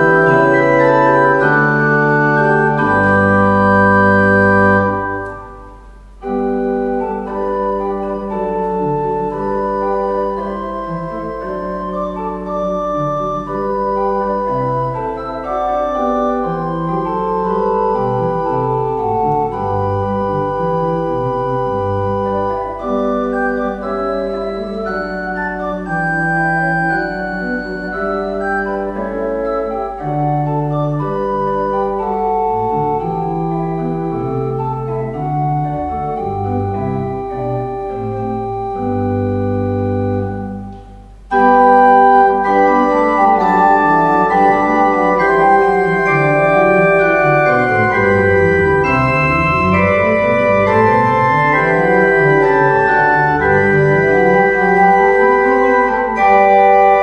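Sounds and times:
church organ playing chords: 0.0 - 57.0.

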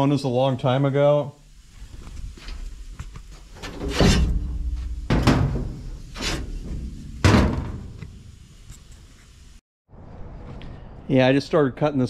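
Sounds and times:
sheet metal door banging: 3.6 - 8.0.

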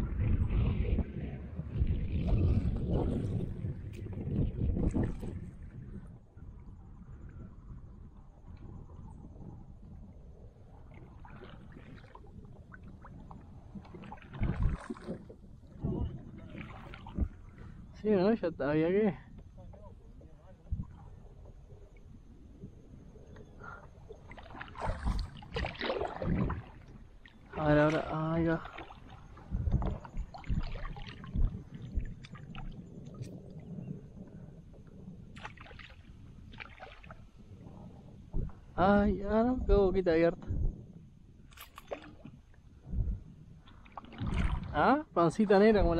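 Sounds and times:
water lapping and dripping: 9.9 - 18.0, 19.4 - 38.7, 41.4 - 43.0, 43.6 - 45.0
kayak paddle splash: 10.9 - 17.5, 24.2 - 33.4, 35.3 - 37.3, 41.5 - 42.5, 43.6 - 44.8.

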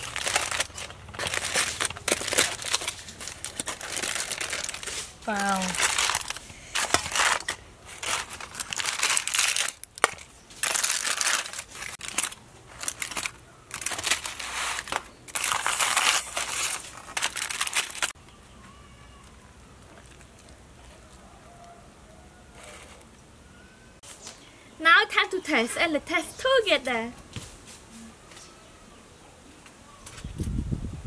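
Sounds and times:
aluminum foil crinkling: 0.0 - 18.2, 18.8 - 21.7.

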